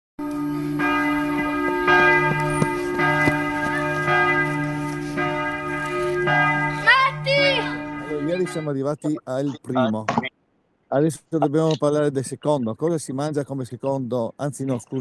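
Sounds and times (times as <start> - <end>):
church bell strokes: 0.2 - 8.7.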